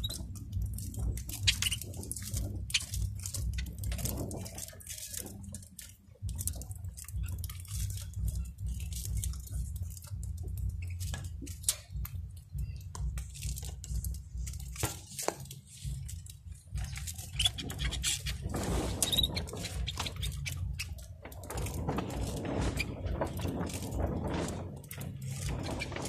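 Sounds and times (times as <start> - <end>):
low rumble: 15.8 - 26.0.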